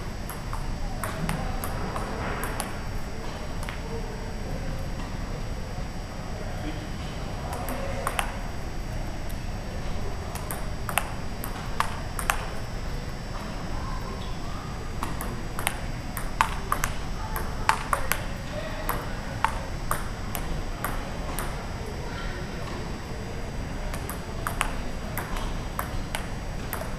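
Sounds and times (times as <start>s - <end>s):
table tennis ball hits: 0.2s - 3.8s, 7.4s - 8.5s, 9.9s - 12.6s, 15.0s - 21.8s, 23.8s - 26.9s.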